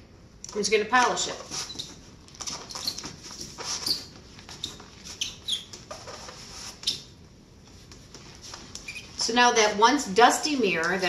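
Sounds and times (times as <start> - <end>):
cloth squeaking on glass: 1.3 - 7.2, 8.5 - 9.3.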